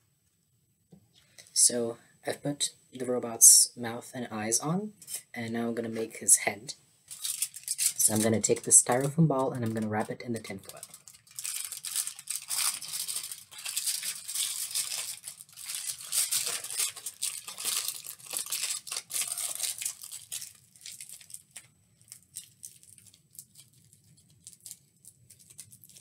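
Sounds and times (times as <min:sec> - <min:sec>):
tin foil crinkling: 0:07.1 - 0:26.0.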